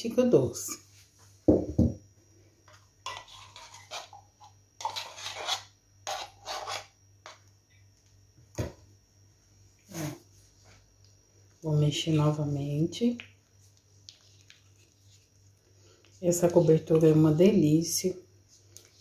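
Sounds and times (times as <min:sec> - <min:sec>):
utensil scraping container: 0:03.0 - 0:07.0.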